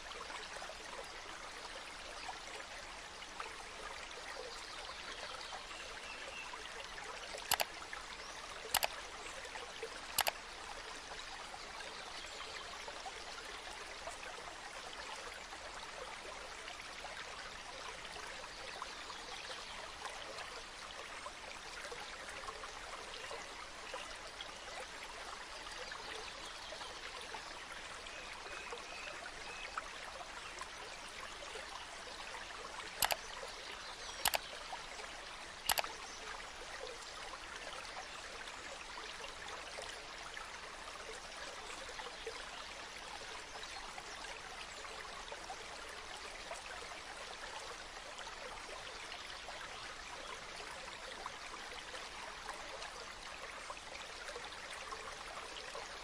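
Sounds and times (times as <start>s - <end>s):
sharp clicks: 7.4s - 7.7s, 8.7s - 9.0s, 10.2s - 10.4s, 33.0s - 33.2s, 34.2s - 34.5s, 35.7s - 36.0s.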